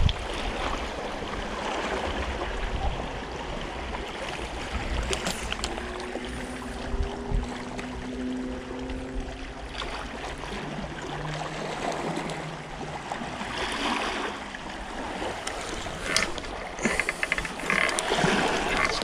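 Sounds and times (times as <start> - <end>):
water lapping against rocks: 0.0 - 19.0
fishing rod clicks: 5.0 - 5.8, 15.4 - 19.0.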